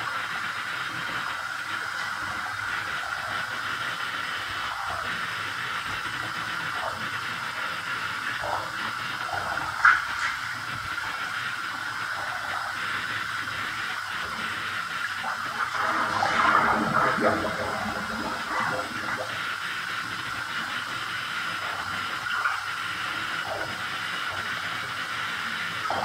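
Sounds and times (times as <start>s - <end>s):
water running from bathtub tap: 0.0s - 26.0s
water sloshing and splashing: 15.3s - 19.3s.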